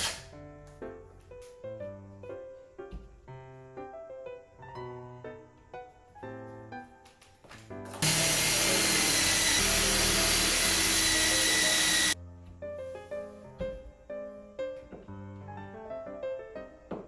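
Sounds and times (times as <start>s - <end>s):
soft piano music: 0.1s - 17.0s
cordless drill whining: 8.0s - 12.2s.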